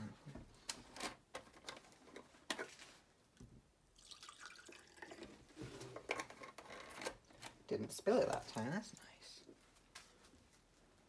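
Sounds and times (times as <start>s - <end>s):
liquid dripping and trickling: 4.0s - 5.4s.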